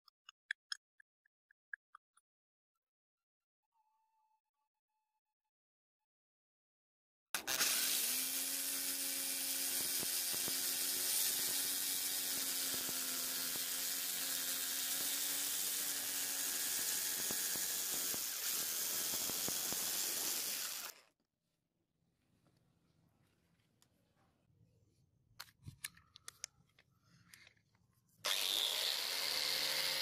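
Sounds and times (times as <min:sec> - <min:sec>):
power tool sanding wood: 0:07.4 - 0:21.0, 0:28.3 - 0:30.0.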